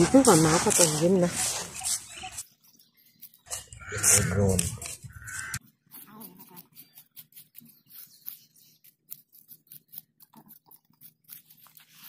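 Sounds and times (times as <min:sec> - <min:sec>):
metal spoons scraping sand: 0:00.0 - 0:12.0.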